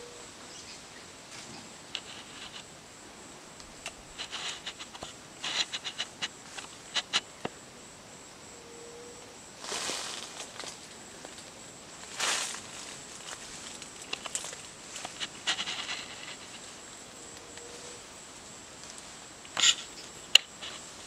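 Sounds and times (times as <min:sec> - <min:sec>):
high-pitched insect hum: 0:00.0 - 0:21.0
crackles: 0:01.3 - 0:02.7, 0:03.6 - 0:07.6, 0:09.6 - 0:21.0
footsteps crunching through dry leaves: 0:12.0 - 0:16.6.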